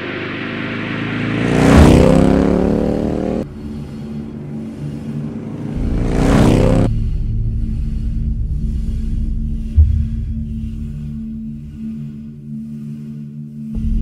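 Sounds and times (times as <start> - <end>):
vehicles passing by: 0.0 - 9.8
low steady drone: 0.0 - 14.0.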